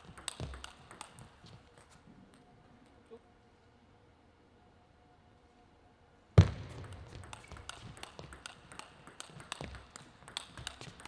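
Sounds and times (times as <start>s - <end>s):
ping pong ball clicks: 0.0s - 1.9s, 6.8s - 11.0s.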